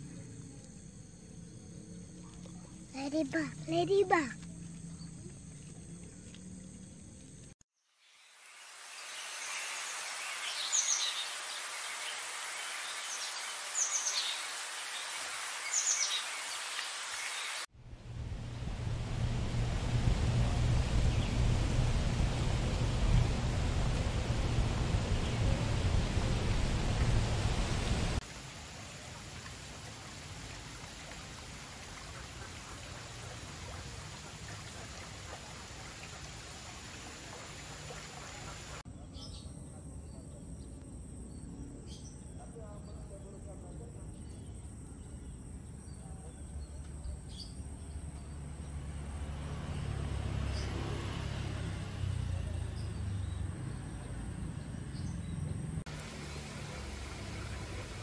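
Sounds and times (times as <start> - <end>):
steady low rumble: 17.8 - 28.2.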